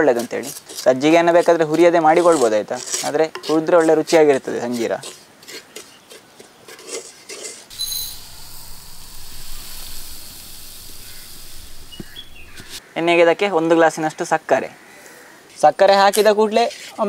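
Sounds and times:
wooden spatula scraping pot: 0.2s - 8.6s
sugar pouring into steel tumbler: 7.7s - 12.2s.

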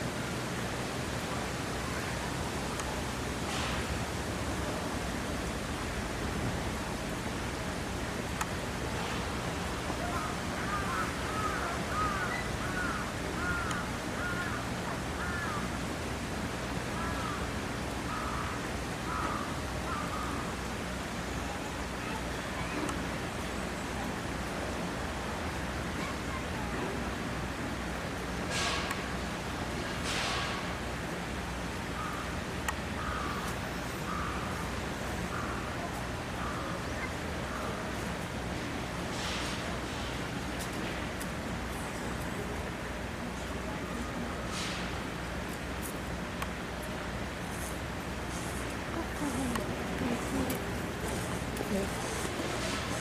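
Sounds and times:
outdoor background noise: 0.0s - 53.0s
steady background noise: 0.0s - 53.0s
bird calling: 10.0s - 15.6s
crow cawing: 10.2s - 15.7s, 17.0s - 17.4s, 18.1s - 20.4s, 33.0s - 33.4s, 34.1s - 34.5s.

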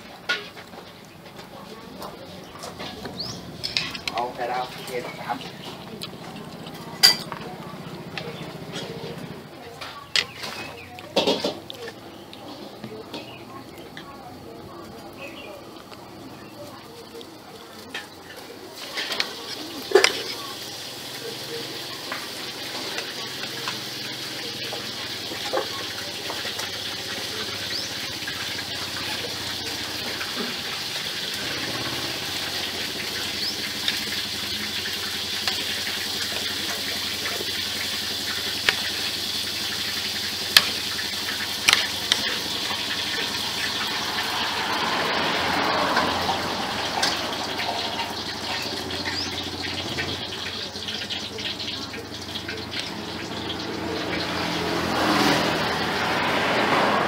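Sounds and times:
cutlery clinking on a plate: 3.6s - 4.2s, 7.0s - 7.4s.

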